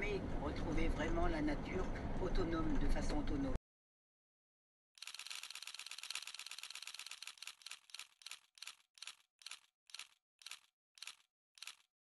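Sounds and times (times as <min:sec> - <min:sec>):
dry mechanical clicks slowing: 0:05.0 - 0:11.9.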